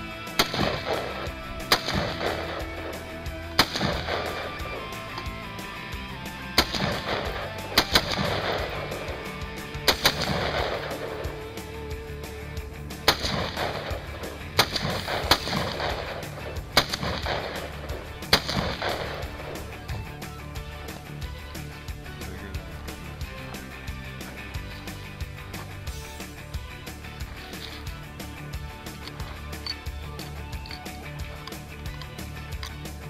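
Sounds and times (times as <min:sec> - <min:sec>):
background music: 0:00.0 - 0:33.0
rifle shots with echo: 0:00.2 - 0:05.4, 0:06.3 - 0:11.8, 0:12.9 - 0:20.2.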